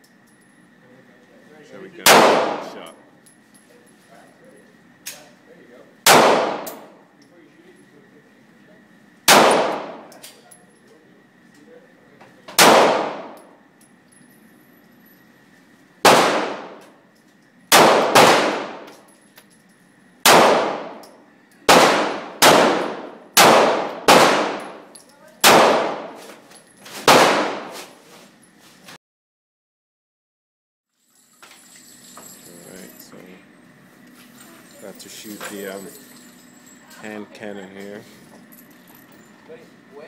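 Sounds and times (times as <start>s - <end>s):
handgun shots echoing indoors: 2.0s - 2.8s, 6.1s - 7.0s, 9.3s - 10.4s, 12.5s - 13.5s, 16.0s - 17.0s, 17.7s - 19.1s, 20.2s - 26.3s, 27.0s - 27.9s.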